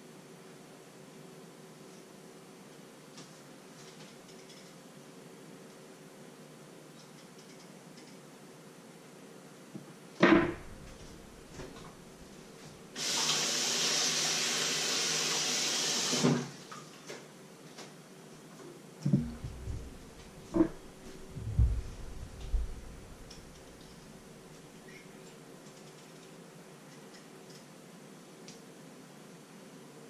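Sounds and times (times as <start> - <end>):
dull knocks and thuds: 10.2 - 11.8, 19.1 - 23.6.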